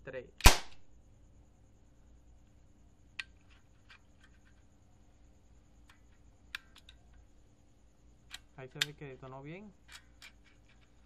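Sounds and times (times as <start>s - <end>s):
faint metal clicks and taps: 5.8s - 7.2s, 8.3s - 11.0s.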